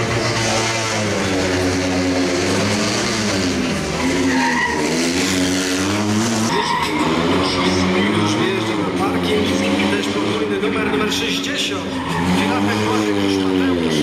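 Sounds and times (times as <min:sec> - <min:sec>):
rally car engine revving: 0:00.0 - 0:14.0
tyre squeal: 0:03.9 - 0:08.2, 0:11.8 - 0:12.7.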